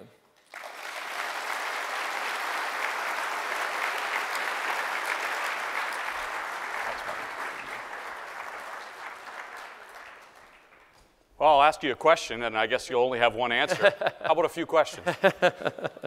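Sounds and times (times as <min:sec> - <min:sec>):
audience applauding: 0:00.4 - 0:11.0.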